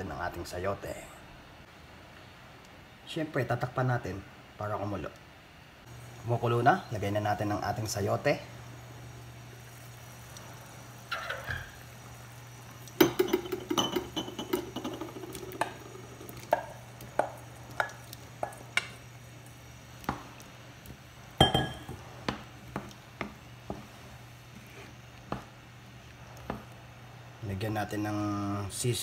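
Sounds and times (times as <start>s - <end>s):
wooden spoon knocking pan: 16.4s - 19.0s.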